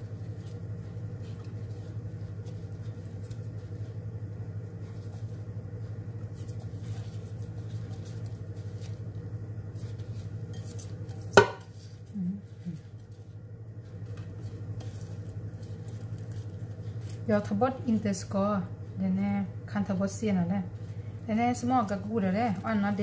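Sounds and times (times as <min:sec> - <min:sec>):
steady low hum: 0:00.0 - 0:23.0
soft rustles: 0:04.6 - 0:11.0.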